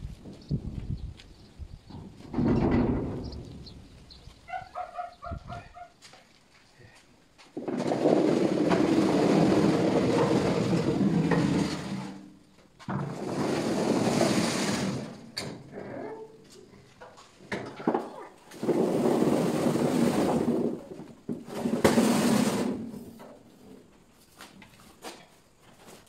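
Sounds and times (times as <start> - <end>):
potatoes rolling on concrete: 6.0 - 23.9.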